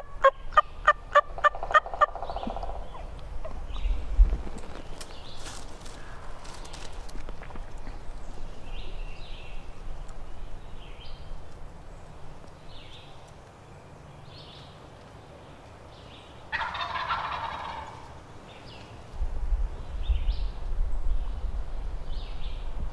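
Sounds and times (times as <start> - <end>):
turkey gobbling: 0.0 - 3.6, 16.5 - 18.2.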